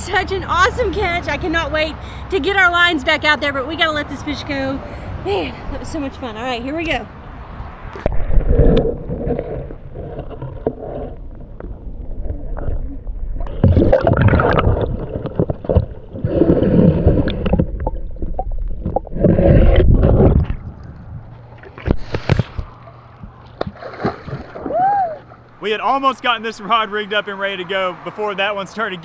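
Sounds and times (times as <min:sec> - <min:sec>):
water sloshing and gurgling: 0:07.2 - 0:25.6.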